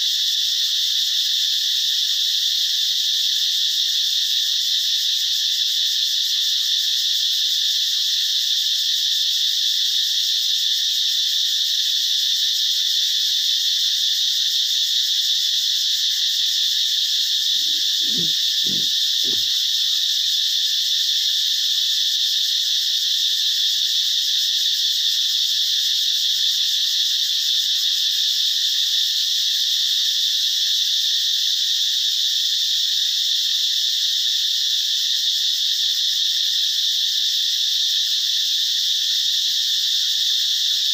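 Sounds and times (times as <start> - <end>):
high-pitched animal chorus: 17.6 - 19.6.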